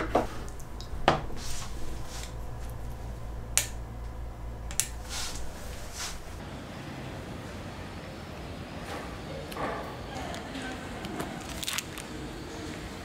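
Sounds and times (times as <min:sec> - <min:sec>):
low steady hum: 0:00.0 - 0:08.8.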